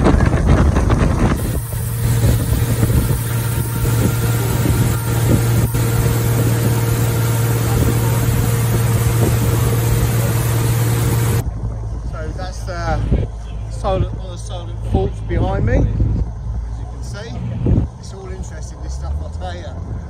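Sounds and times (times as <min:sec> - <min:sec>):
rushing wake water: 0:00.0 - 0:11.4
powerboat engine droning: 0:00.0 - 0:18.8
wind: 0:00.0 - 0:20.0.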